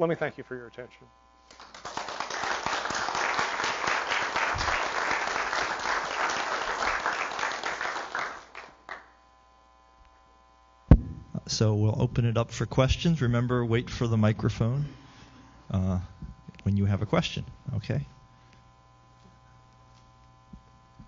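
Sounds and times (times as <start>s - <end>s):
audience applauding: 1.5s - 9.1s
sharp thump: 10.9s - 11.5s.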